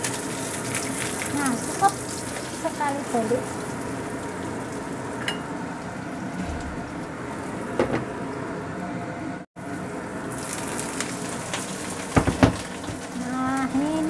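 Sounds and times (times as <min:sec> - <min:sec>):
omelette sizzling in oil: 0:00.0 - 0:06.0, 0:09.7 - 0:14.0.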